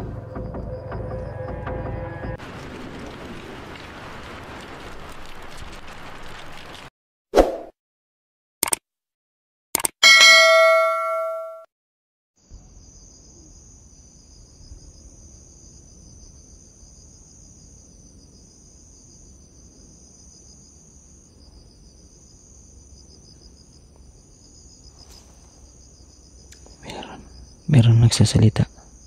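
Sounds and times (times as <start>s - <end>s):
crickets trilling: 12.4s - 29.0s.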